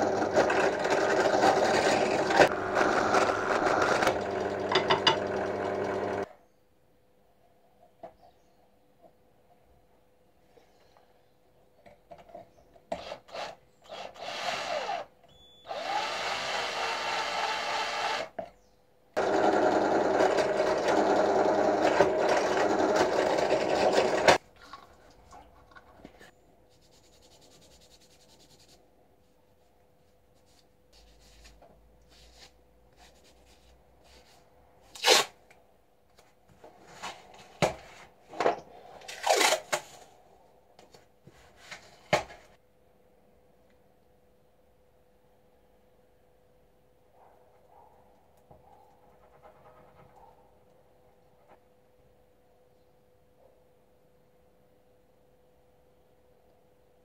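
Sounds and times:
cordless drill drilling horn: 13.3s - 18.3s.

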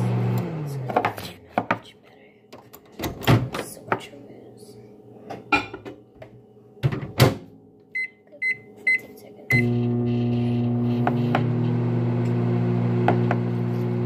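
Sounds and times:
microwave oven humming: 0.0s - 0.8s, 6.6s - 14.0s.

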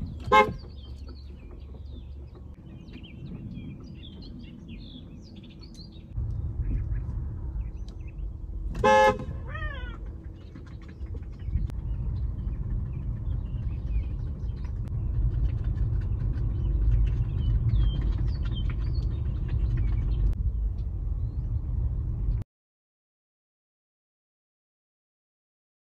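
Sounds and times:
steady low rumble: 0.0s - 22.4s
car horn toot: 0.2s - 0.7s, 8.8s - 9.5s
cat meowing: 9.4s - 10.1s.

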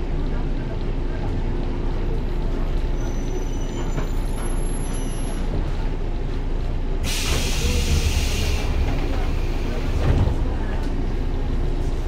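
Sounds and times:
train interior rumble: 0.0s - 12.0s
loud air hiss: 7.0s - 8.9s.

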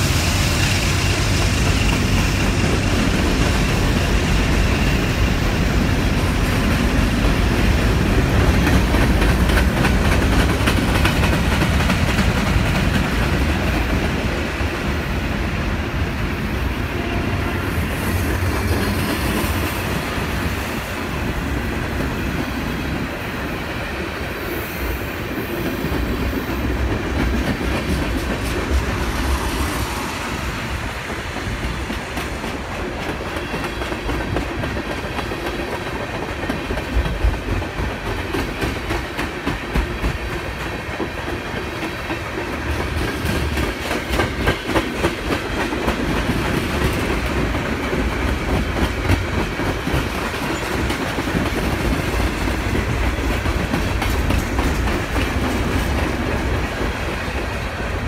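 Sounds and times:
train wheels rumbling on rail: 0.0s - 58.0s
wheels clicking over rail joints: 31.9s - 57.6s.

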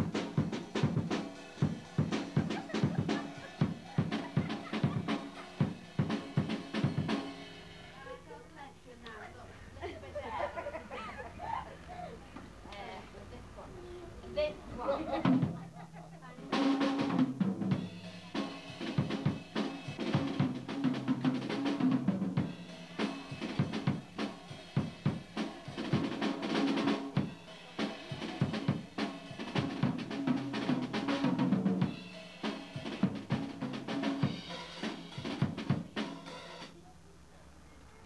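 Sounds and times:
drum kit playing: 0.0s - 8.3s, 15.0s - 36.8s
background music: 0.0s - 8.4s.

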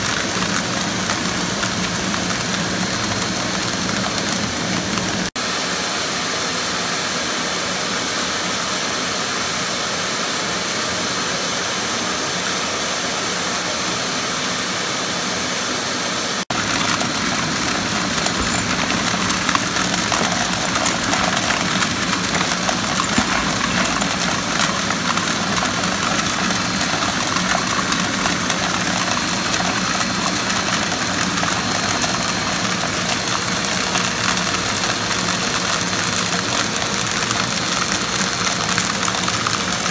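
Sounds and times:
nut shells rattling down a tube: 16.5s - 32.2s
shop vacuum motor running: 16.5s - 34.0s.

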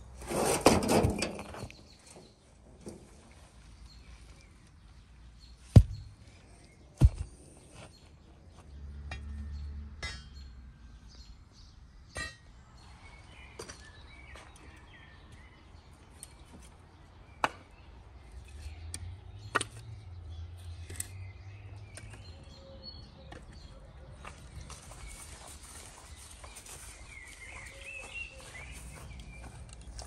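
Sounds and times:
firewood logs knocking: 5.7s - 6.1s, 7.0s - 7.3s.

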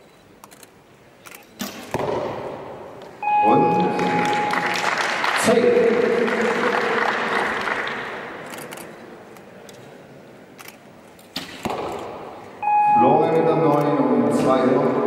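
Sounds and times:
crowd noise: 0.8s - 15.0s
arrow striking target: 1.6s - 2.7s, 11.3s - 12.3s.

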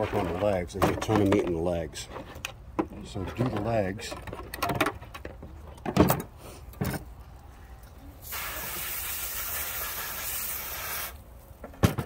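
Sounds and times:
air blow gun hissing: 8.2s - 11.2s.

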